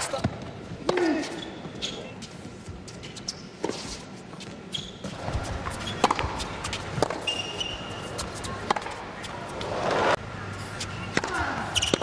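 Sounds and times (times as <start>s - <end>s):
crowd background noise: 0.0s - 12.0s
rackets striking tennis ball: 5.1s - 10.2s, 10.8s - 12.0s.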